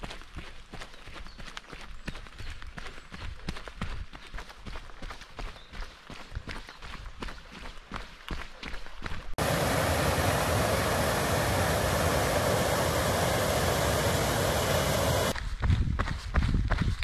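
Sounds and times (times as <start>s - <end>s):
running footsteps on a trail: 0.0s - 10.0s, 10.8s - 17.0s
water rushing over waterfalls: 9.4s - 15.4s.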